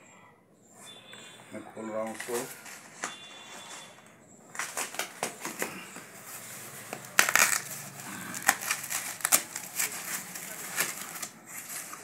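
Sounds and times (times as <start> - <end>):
packing wrap crinkling: 1.8 - 12.0
tape tearing: 4.5 - 12.0.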